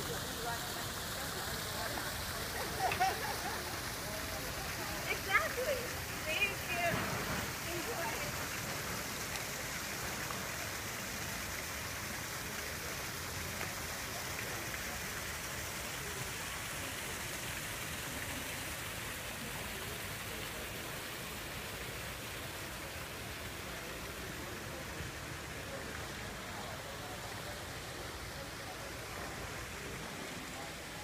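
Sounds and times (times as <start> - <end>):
fountain water splashing: 0.0 - 31.0
murmur of voices: 0.0 - 31.0.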